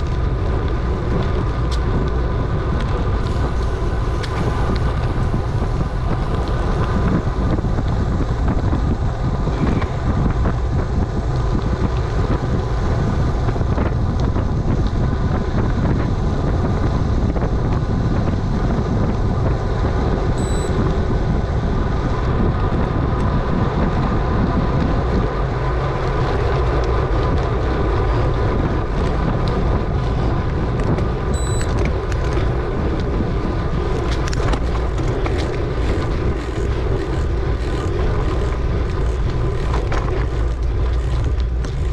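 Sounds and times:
tyres rolling on asphalt: 0.0 - 41.9
wind rushing over microphone: 0.0 - 41.9
faint steady whine: 20.3 - 21.1.

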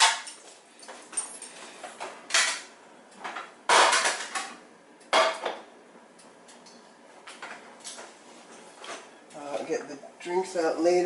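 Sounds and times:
plates and cutlery clattering: 2.3 - 5.6.

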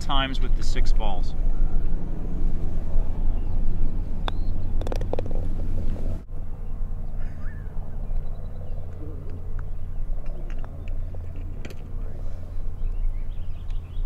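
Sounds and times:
low outdoor rumble: 0.0 - 14.0
putter striking golf ball: 4.2 - 6.2, 9.2 - 11.9.

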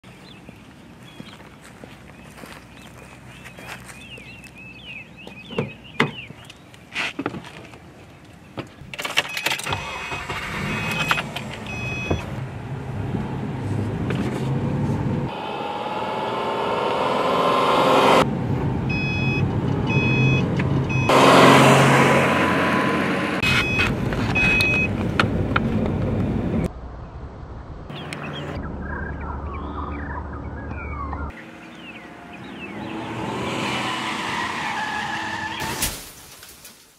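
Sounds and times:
car warning chime beeps: 9.3 - 12.4, 18.9 - 21.2, 23.4 - 24.9
car engine accelerating: 9.7 - 26.7.

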